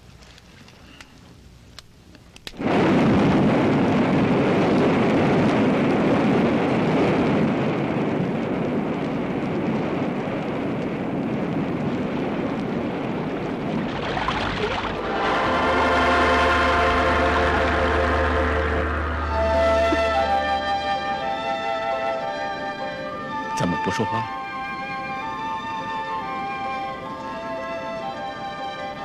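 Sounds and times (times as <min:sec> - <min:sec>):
waterfall rushing: 0:13.7 - 0:23.3.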